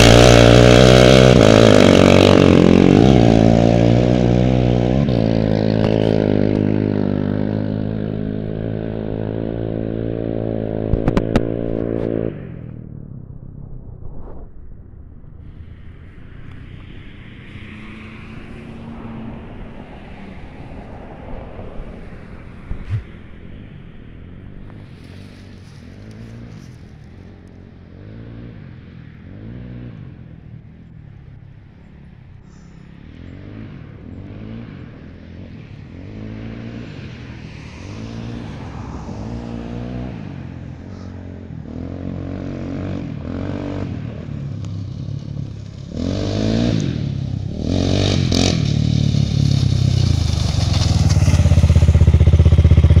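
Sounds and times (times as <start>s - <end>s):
quad engine revving: 0.0s - 12.7s, 38.0s - 53.0s.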